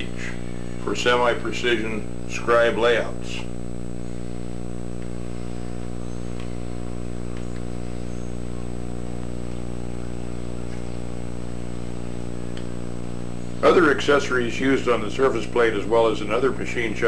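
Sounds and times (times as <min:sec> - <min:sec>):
constant hiss: 0:00.0 - 0:17.0
electrical hum: 0:00.0 - 0:17.0.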